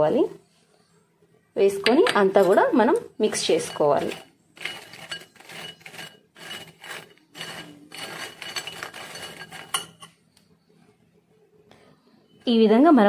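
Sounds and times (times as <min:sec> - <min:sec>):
spoon stirring crisp snacks in bowl: 0:02.1 - 0:10.1.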